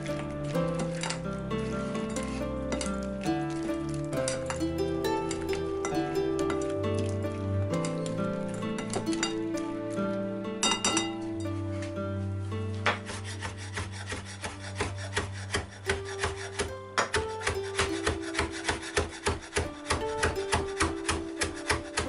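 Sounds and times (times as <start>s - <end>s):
soft background music: 0.0s - 22.0s
knife chopping on wooden board: 12.8s - 22.0s.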